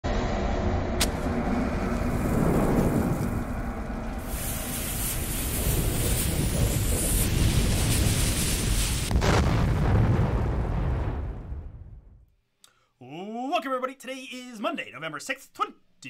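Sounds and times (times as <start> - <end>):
low rumble: 0.0 - 12.3
rushing hiss of flames: 1.0 - 10.8.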